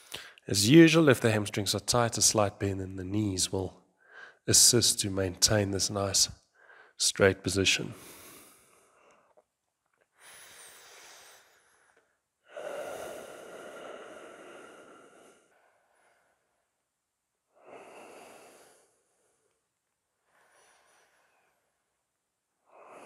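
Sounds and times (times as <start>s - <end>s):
person breathing deeply: 4.0s - 4.4s, 7.9s - 9.3s, 10.2s - 16.7s, 17.5s - 19.6s, 20.2s - 21.9s.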